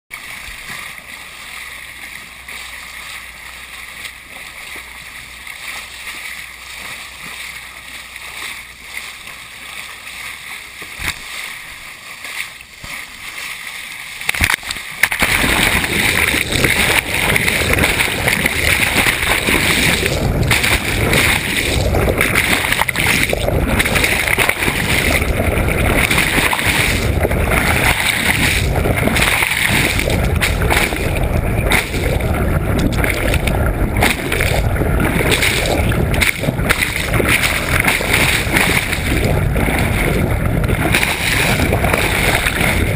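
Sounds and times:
sea water rushing and splashing: 0:00.1 - 0:42.9
underwater rush: 0:00.1 - 0:42.9.

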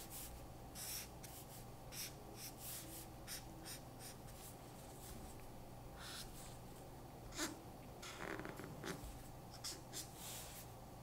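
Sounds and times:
marker scratching on paper: 0:00.0 - 0:04.5, 0:06.0 - 0:06.4, 0:07.3 - 0:08.2, 0:08.8 - 0:10.6.

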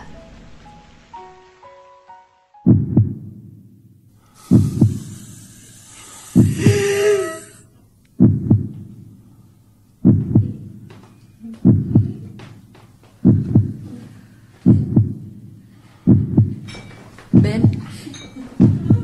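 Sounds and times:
heartbeat thumps: 0:02.7 - 0:03.5, 0:04.5 - 0:05.2, 0:06.4 - 0:07.1, 0:08.2 - 0:09.1, 0:10.0 - 0:11.0, 0:11.6 - 0:12.5, 0:13.2 - 0:14.0, 0:14.6 - 0:16.7, 0:17.3 - 0:18.0, 0:18.6 - 0:19.0.

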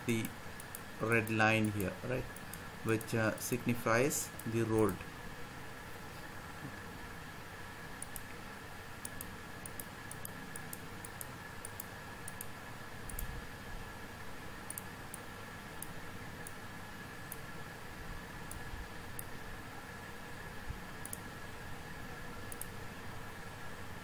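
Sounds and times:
faint steady hum: 0:00.0 - 0:24.0
computer mouse clicking: 0:00.2 - 0:03.6, 0:04.3 - 0:05.0, 0:08.0 - 0:08.3, 0:09.0 - 0:12.5, 0:13.1 - 0:13.3, 0:14.7 - 0:15.2, 0:21.0 - 0:21.3, 0:22.5 - 0:22.8.

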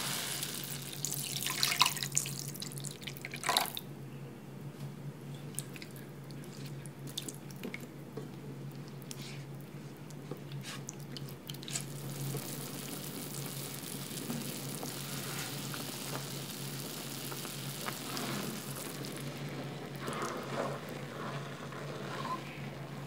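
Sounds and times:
meat bubbling and sizzling in pan: 0:00.0 - 0:03.3, 0:10.8 - 0:23.0
spatula scraping pan: 0:18.0 - 0:18.7, 0:19.5 - 0:23.0.

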